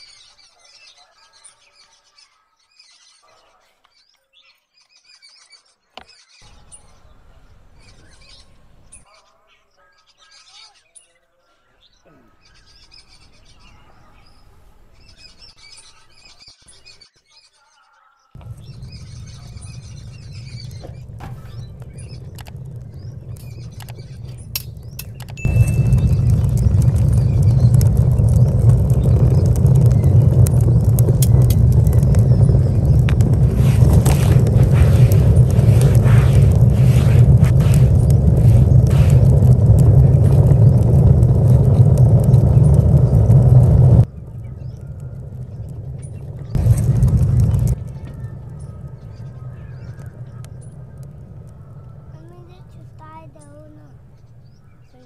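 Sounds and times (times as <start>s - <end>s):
small birds chirping: 0.0s - 55.0s
stick scraping embers: 18.4s - 40.8s
low rumbling noise: 18.4s - 55.0s.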